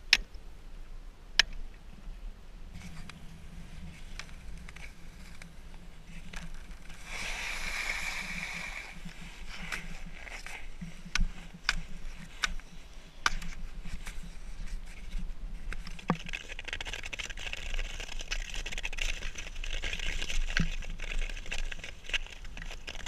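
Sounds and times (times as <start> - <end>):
ice skates scraping on ice: 2.8 - 12.4
skate blades hissing: 7.0 - 9.7
ice pinging and cracking: 15.7 - 23.0.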